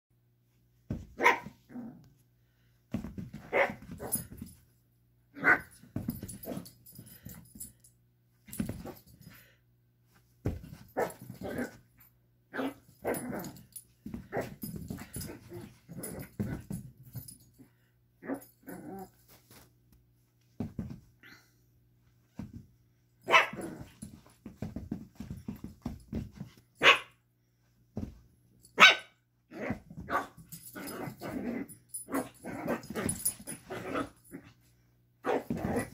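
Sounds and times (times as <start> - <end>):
puppy barking gruffly: 1.2 - 1.6, 23.3 - 23.8.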